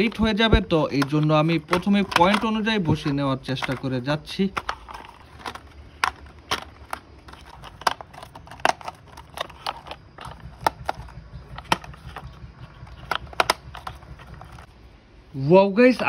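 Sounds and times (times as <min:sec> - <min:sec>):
plastic toy parts clicking together: 0:01.0 - 0:14.7.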